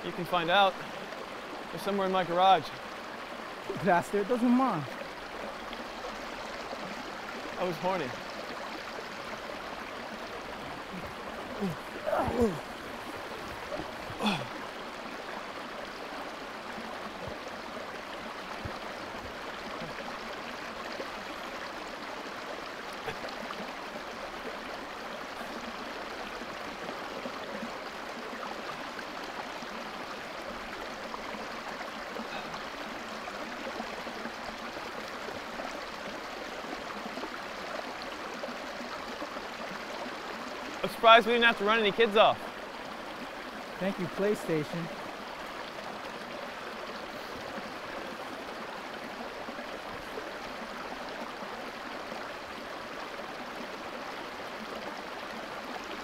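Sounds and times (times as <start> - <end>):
stream babbling: 0.0 - 56.0.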